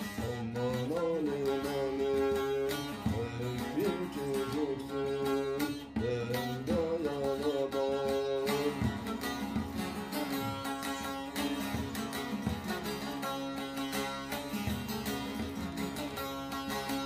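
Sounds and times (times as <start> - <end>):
long-necked lute folk melody: 0.0 - 17.0.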